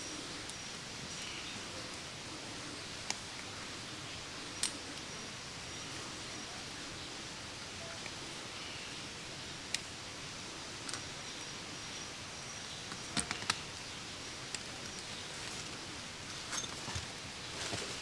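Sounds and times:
steady background hiss: 0.0 - 18.0.

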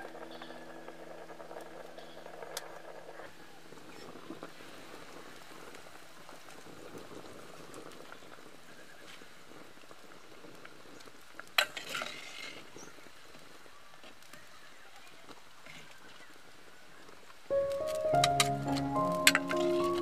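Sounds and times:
broth bubbling in a pot: 0.0 - 17.4
wood fire crackling: 0.0 - 20.0
background music: 17.5 - 20.0.

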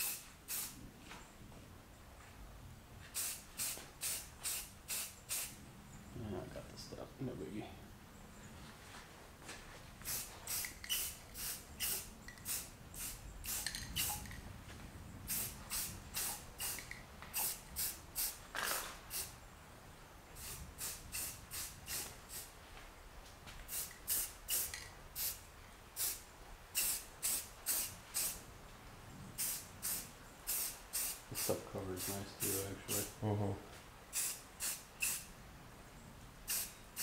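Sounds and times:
aerosol spray paint bursts: 0.0 - 0.8, 3.1 - 5.6, 10.0 - 14.4, 15.3 - 19.3, 20.4 - 22.5, 23.7 - 25.4, 26.0 - 26.2, 26.8 - 28.4, 29.4 - 33.1, 34.1 - 35.3, 36.5 - 37.0.

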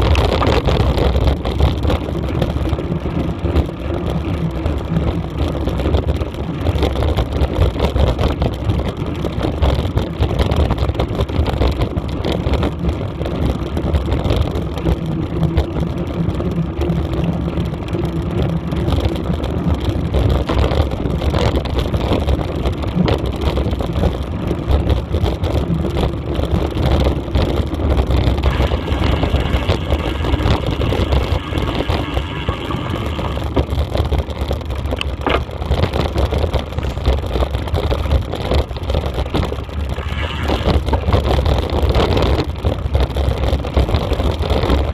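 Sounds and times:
wind on microphone: 0.0 - 44.9.

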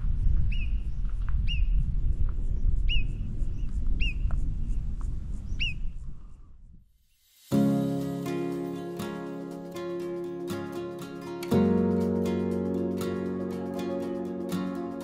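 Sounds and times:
wind rumbling on microphone: 0.0 - 6.9.

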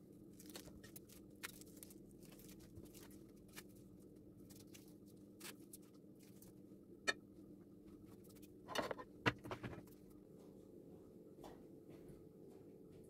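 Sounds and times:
plate knocking on counter: 8.7 - 9.8.

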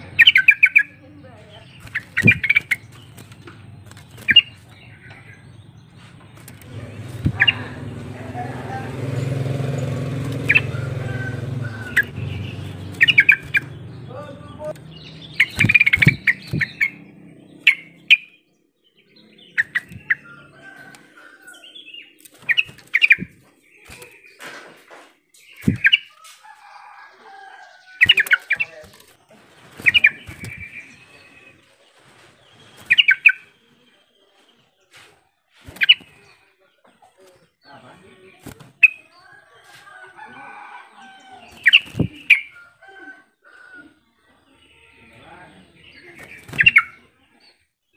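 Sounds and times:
bird chattering calls: 0.0 - 18.4, 19.1 - 24.4, 25.3 - 26.8, 27.7 - 29.0, 29.7 - 31.6, 32.5 - 33.6, 35.7 - 36.4, 41.5 - 42.6, 45.8 - 47.1
low engine hum: 1.4 - 18.1
wing flutters: 1.6 - 4.9, 6.0 - 18.2, 19.5 - 33.5, 34.9 - 36.3, 41.4 - 42.7, 46.1 - 47.0.

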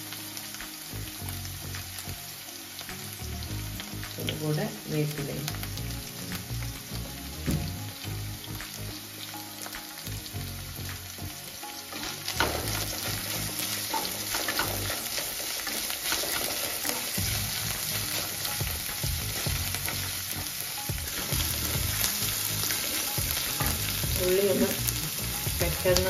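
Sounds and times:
vegetables sizzling in oil: 0.0 - 26.0
spatula scraping a pan: 11.9 - 18.6.

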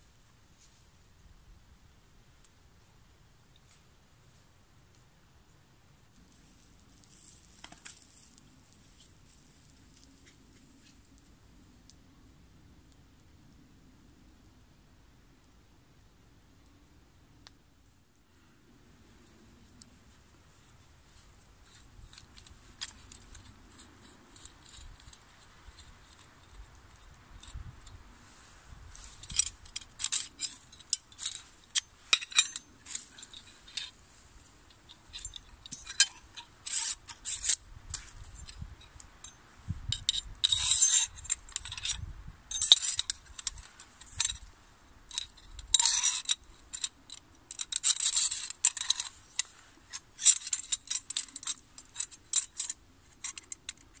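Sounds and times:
metal saw parts clinking and scraping: 28.9 - 34.0, 34.7 - 37.6, 40.0 - 44.5, 45.1 - 54.0.

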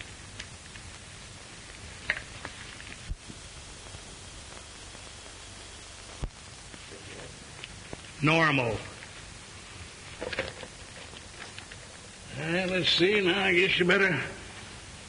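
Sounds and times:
faint clicks: 0.0 - 1.0
film soundtrack hiss: 0.0 - 15.0.

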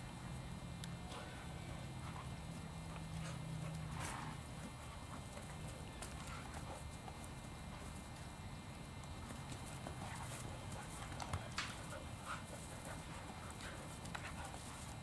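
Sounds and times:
steady low hum: 0.0 - 15.0
paws scuffing on grass: 1.2 - 15.0.

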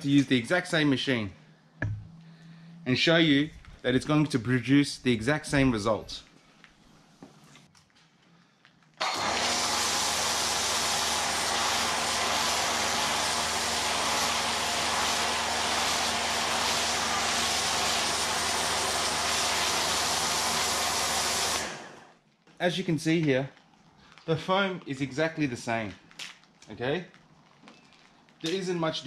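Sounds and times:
foam cannon spraying hiss: 9.0 - 22.0
pressure washer motor hum: 9.0 - 22.1.

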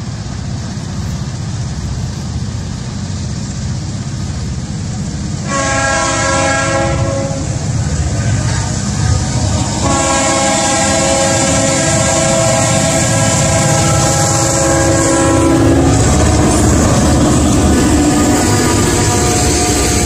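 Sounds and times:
diesel engines rumbling: 0.0 - 20.0
locomotive air horn chord: 5.4 - 7.6, 8.2 - 20.0.

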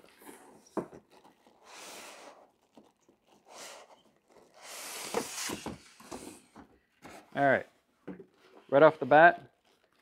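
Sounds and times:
packing material rustling: 0.0 - 6.0, 8.3 - 10.0.

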